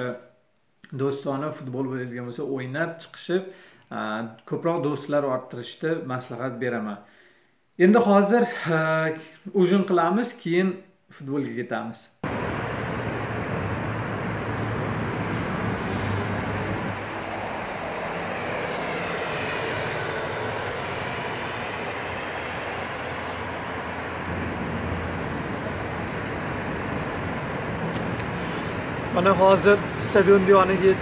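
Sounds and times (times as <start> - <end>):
car driving past: 12.2 - 31.0
road traffic noise: 12.2 - 31.0.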